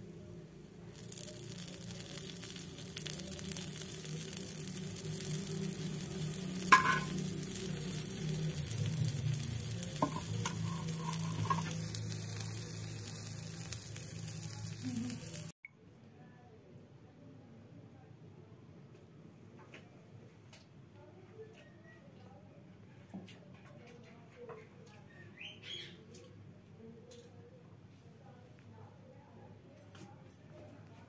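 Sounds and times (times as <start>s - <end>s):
food sizzling on griddle: 0.8s - 15.6s
spatula clinking on griddle: 6.7s - 7.3s.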